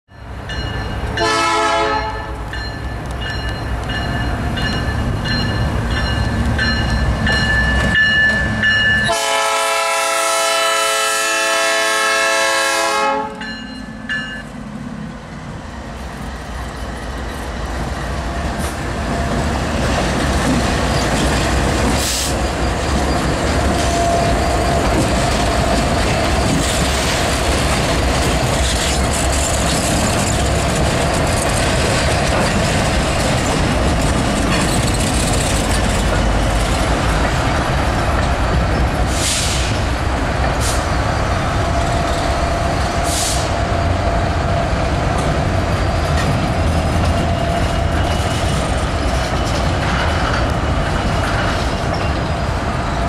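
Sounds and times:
freight train rumbling past: 0:00.1 - 0:53.0
locomotive air horn blast: 0:01.2 - 0:02.4, 0:09.1 - 0:13.4.

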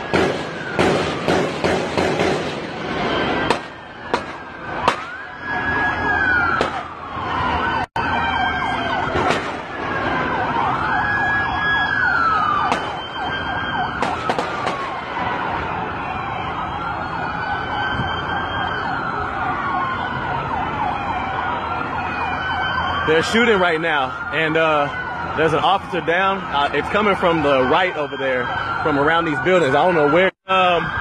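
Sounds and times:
gunshots: 0:00.0 - 0:02.8, 0:03.4 - 0:05.2, 0:12.7 - 0:13.0
police sirens wailing: 0:00.0 - 0:31.0.

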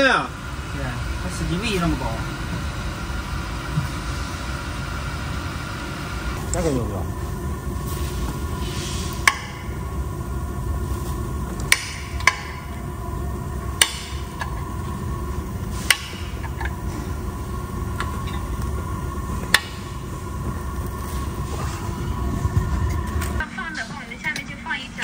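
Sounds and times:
low rumble: 0:06.4 - 0:25.0.

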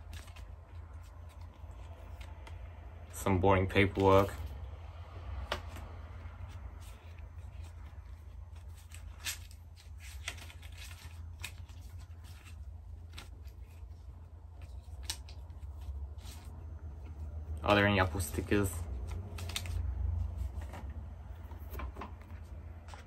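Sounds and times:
paper rustling and crinkling: 0:00.0 - 0:02.6, 0:05.6 - 0:17.3, 0:18.1 - 0:23.0.

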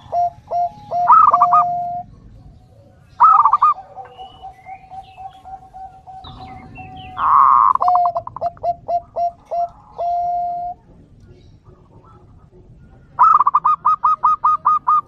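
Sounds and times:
dove cooing: 0:00.0 - 0:15.0
small birds chirping: 0:00.0 - 0:15.0.

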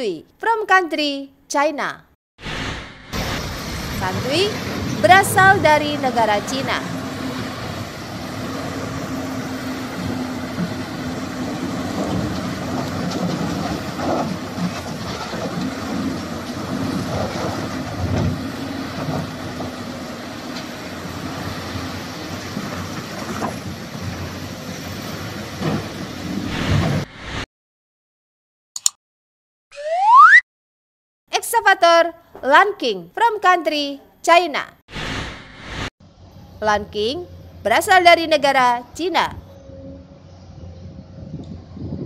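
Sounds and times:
excavator diesel engines running: 0:03.1 - 0:27.4, 0:36.0 - 0:42.0.

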